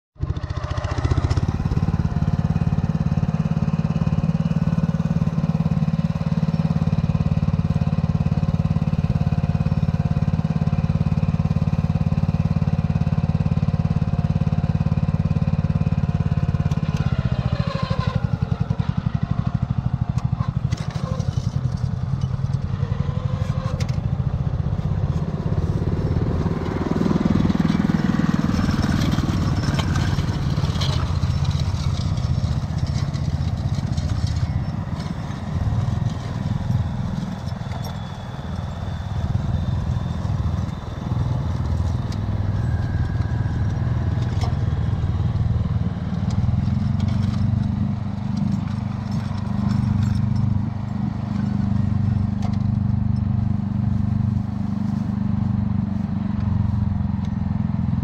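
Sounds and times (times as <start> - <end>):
cultivator engine running: 0.2 - 58.0
clicks and clatter: 28.6 - 38.1.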